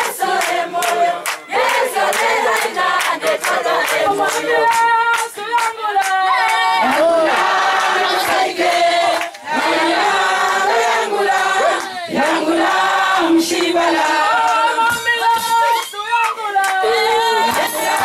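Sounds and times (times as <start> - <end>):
church choir singing: 0.0 - 5.2, 5.8 - 15.5, 16.6 - 18.0.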